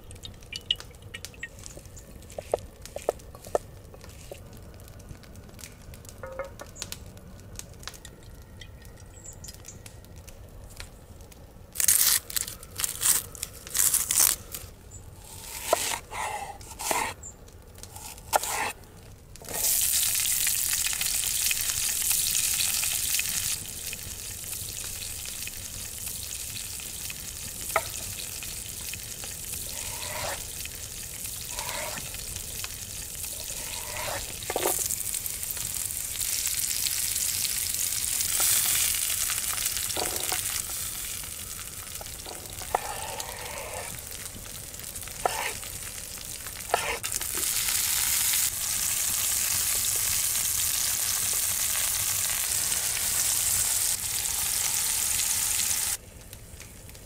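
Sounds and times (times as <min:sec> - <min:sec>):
knife cutting on wooden board: 0:15.5 - 0:17.1, 0:18.3 - 0:18.7, 0:29.8 - 0:30.4, 0:31.6 - 0:32.0, 0:33.5 - 0:34.8, 0:42.6 - 0:43.9, 0:45.2 - 0:45.6, 0:46.7 - 0:47.0
vegetables sizzling in a pan: 0:17.9 - 0:18.8, 0:19.4 - 0:56.0.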